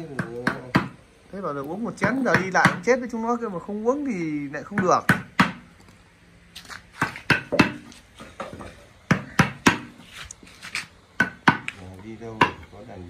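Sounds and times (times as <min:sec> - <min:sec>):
hand tools knocking on wood: 0:00.0 - 0:01.0, 0:02.0 - 0:02.9, 0:04.6 - 0:05.6, 0:07.0 - 0:10.0, 0:11.2 - 0:12.7.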